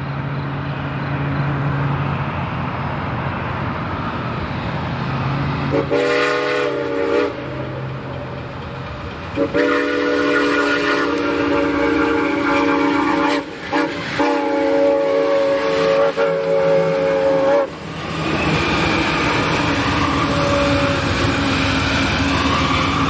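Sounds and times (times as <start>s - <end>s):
train wheels rumbling on rails: 0.0s - 23.0s
steam locomotive chime whistle: 5.7s - 7.9s, 9.3s - 17.8s, 18.4s - 23.0s.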